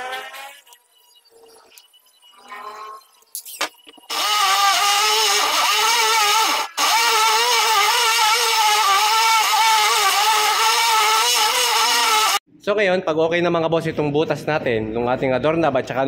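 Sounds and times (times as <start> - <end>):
electric drill boring wood: 4.1 - 12.4.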